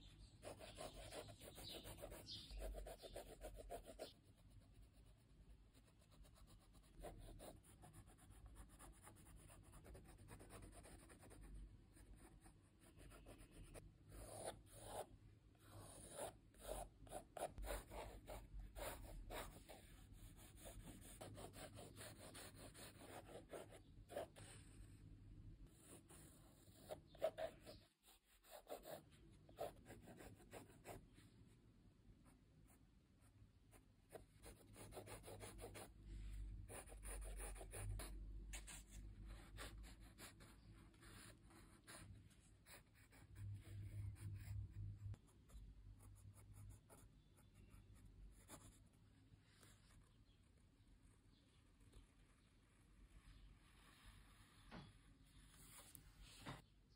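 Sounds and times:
pencil scratching on paper: 0.4s - 24.9s, 25.7s - 31.0s, 32.7s - 35.9s, 36.7s - 48.9s.

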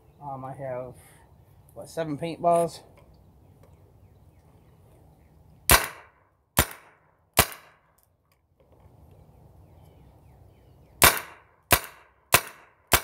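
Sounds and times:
paintball marker firing: 5.7s - 7.9s, 11.0s - 13.0s.

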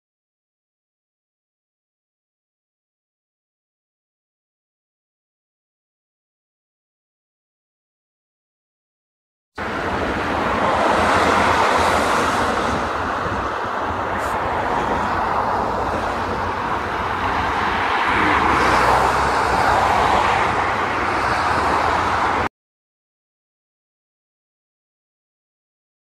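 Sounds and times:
road traffic noise: 9.6s - 22.5s
wind rumbling on microphone: 9.6s - 22.5s.

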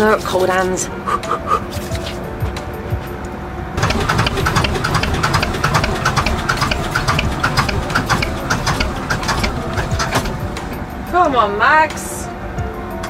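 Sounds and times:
diesel engine being hand-cranked: 3.8s - 11.2s.

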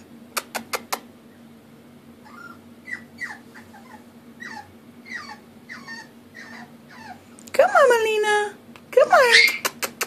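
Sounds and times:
puppy whimpering: 2.2s - 7.9s, 9.1s - 9.7s.

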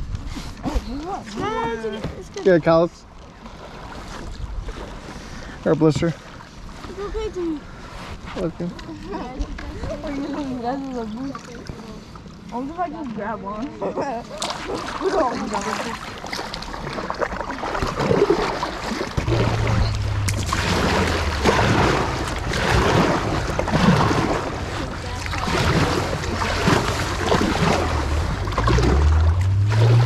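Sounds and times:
paddles splashing water: 0.0s - 30.0s
water moving past hull: 0.0s - 30.0s
wind rumble on microphone: 19.1s - 30.0s.

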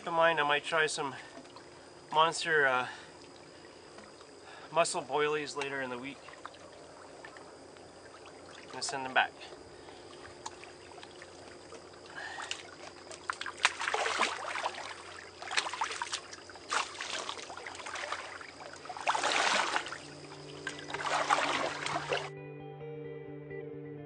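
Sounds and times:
water splashing and sloshing: 0.0s - 5.0s, 5.6s - 22.3s
guitar music: 19.9s - 24.0s.

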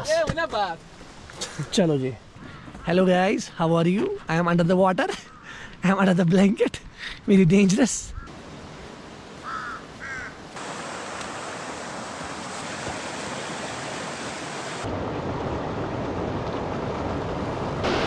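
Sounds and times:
rain falling: 10.5s - 18.0s.

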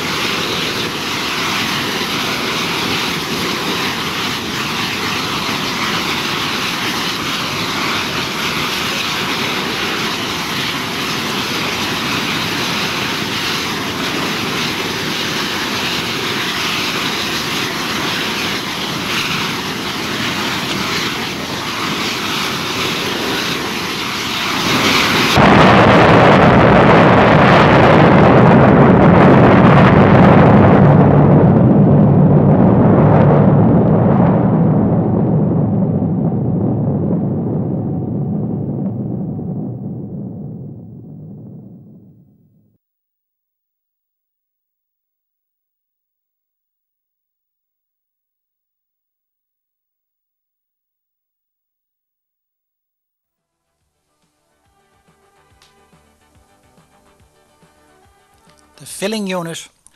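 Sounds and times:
burning gas leak roaring: 0.0s - 42.2s
tank explosion fireball roar: 0.0s - 42.6s.

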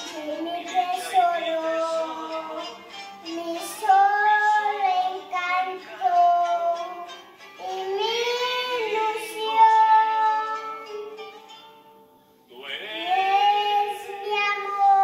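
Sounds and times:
child singing: 0.0s - 11.2s, 12.9s - 15.0s.

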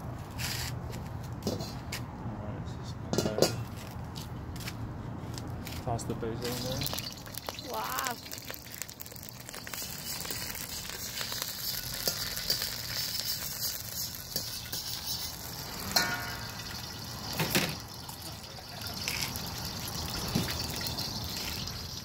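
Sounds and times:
basil sizzling in oil: 6.4s - 22.0s
metal spatula scraping wok: 9.6s - 17.8s.

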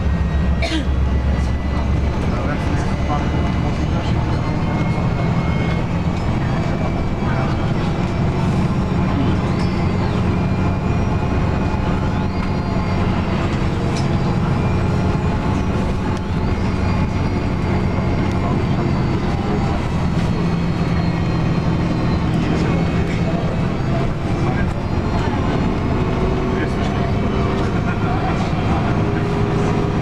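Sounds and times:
bus engine droning: 0.0s - 30.0s
tyre and road noise: 0.0s - 30.0s.

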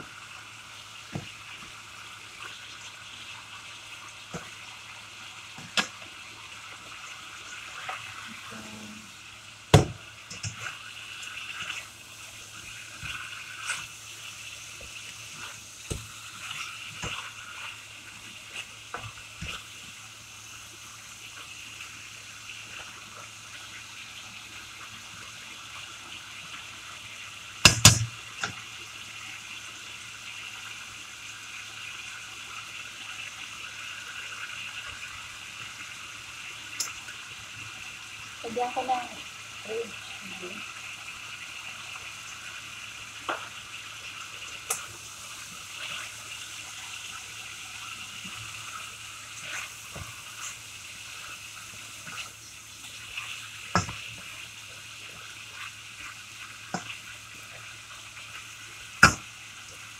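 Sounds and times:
chicken sizzling in a frying pan: 0.0s - 59.9s.

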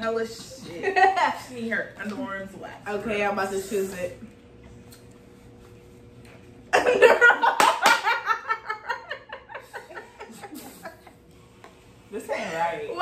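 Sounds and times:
women laughing loudly: 6.8s - 11.2s.

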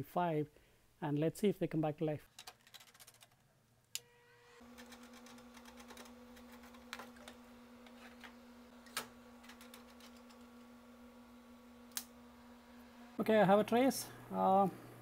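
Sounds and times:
oscilloscope humming: 3.9s - 15.0s.

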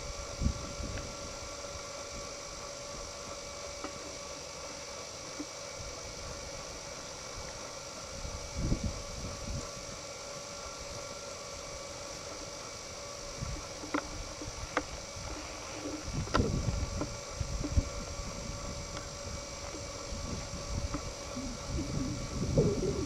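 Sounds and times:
wind rumble on microphone: 0.0s - 1.6s, 8.1s - 10.0s, 13.3s - 23.0s
steady hum and hiss: 0.0s - 23.0s.

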